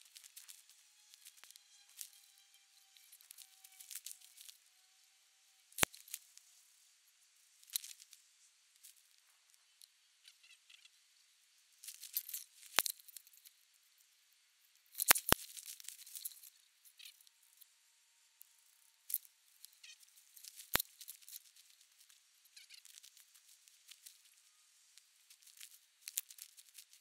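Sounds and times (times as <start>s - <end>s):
foliage rustling and crinkling: 0.0s - 2.2s, 3.0s - 4.6s, 5.8s - 6.6s, 7.5s - 9.8s, 11.8s - 13.5s, 14.9s - 17.3s, 19.1s - 27.0s.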